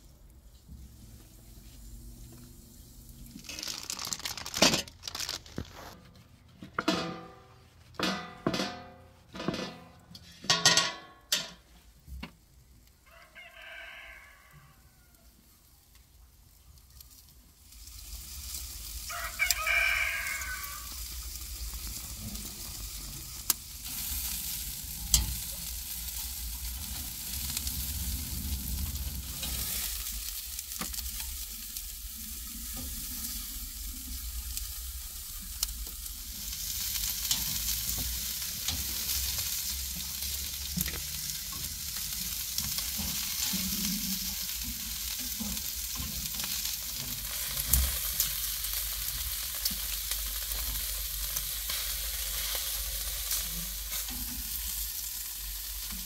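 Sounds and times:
meat sizzling on a grill: 0:00.0 - 0:06.0, 0:11.9 - 0:56.0
rooster crowing: 0:13.1 - 0:15.4, 0:19.1 - 0:21.0.

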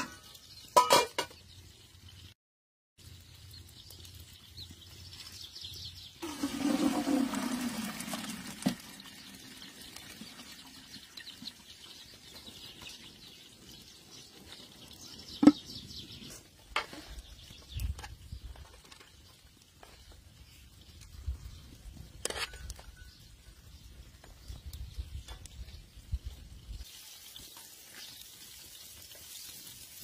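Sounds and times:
metal cookware clanking: 0:00.0 - 0:01.4
water draining into colander: 0:06.2 - 0:10.9.

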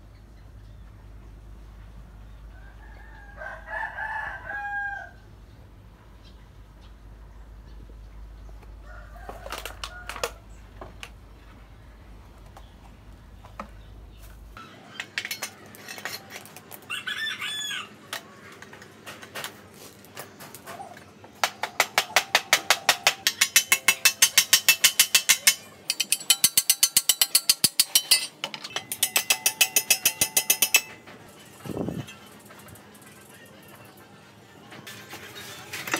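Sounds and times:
rooster crowing: 0:02.5 - 0:05.3, 0:08.8 - 0:10.4, 0:16.8 - 0:18.0
rapid creaking clicks of metal: 0:21.4 - 0:33.8.

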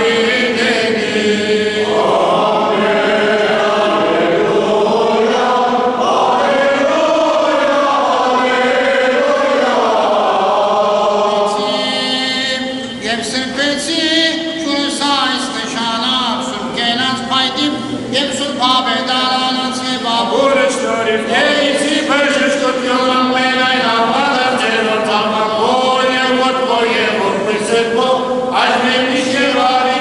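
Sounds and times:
choir chanting a hymn: 0:00.0 - 0:30.0
man chanting: 0:11.3 - 0:30.0.

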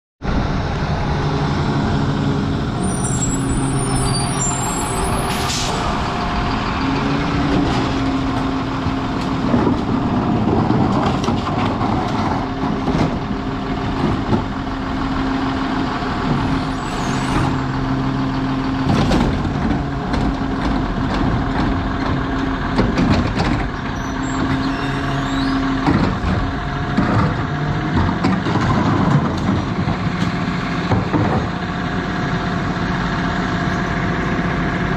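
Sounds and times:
garbage truck running: 0:00.2 - 0:34.9
squeal: 0:02.8 - 0:05.5, 0:16.6 - 0:17.6, 0:23.9 - 0:25.7.

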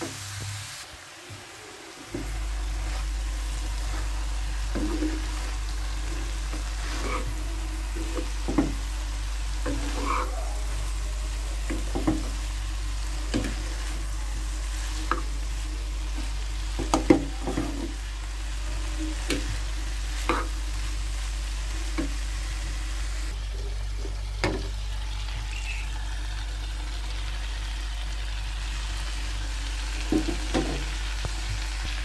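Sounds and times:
faint sizzle: 0:00.0 - 0:32.0
spoon scraping a pan: 0:03.8 - 0:10.8, 0:18.8 - 0:20.6.

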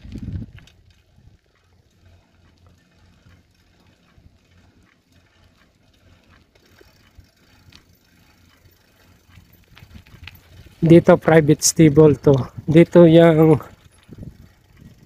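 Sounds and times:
footsteps on pavement: 0:00.0 - 0:11.1.

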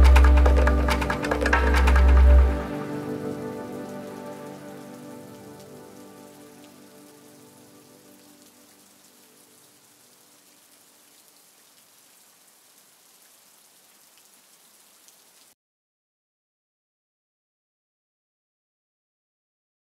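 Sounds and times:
rain drop ticks: 0:00.0 - 0:02.8, 0:06.5 - 0:15.6
held synth chord: 0:00.0 - 0:08.1
faint rain hiss: 0:00.0 - 0:15.6.

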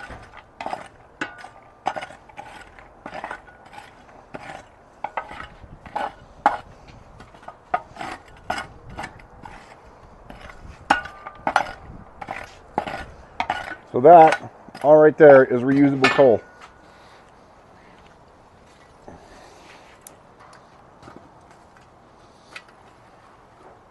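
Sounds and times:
metal tool scraping steel bowl: 0:00.0 - 0:16.5.

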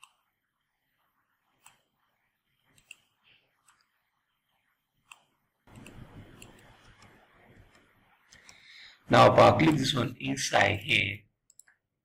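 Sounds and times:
computer mouse clicks: 0:00.0 - 0:00.3, 0:01.5 - 0:02.0, 0:02.6 - 0:04.0, 0:05.0 - 0:08.6, 0:11.4 - 0:11.8.

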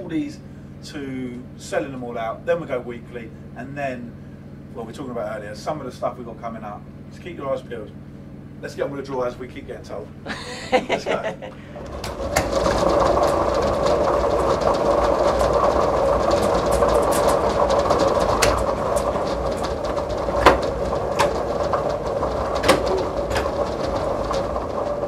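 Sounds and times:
machine whirring: 0:10.7 - 0:25.0
lottery balls clattering in drum: 0:11.0 - 0:25.0.

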